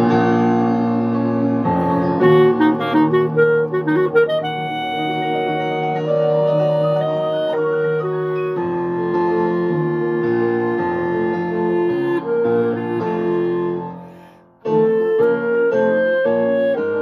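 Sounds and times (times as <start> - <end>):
piano accompaniment: 0.0 - 17.0
clarinet playing: 1.7 - 17.0.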